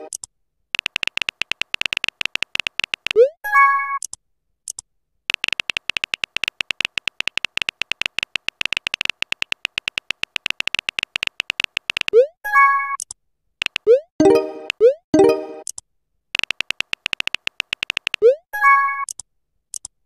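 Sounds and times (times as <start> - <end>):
keyboard typing clicks: 0.0 - 3.3, 4.0 - 12.3, 13.0 - 15.8, 16.4 - 19.9.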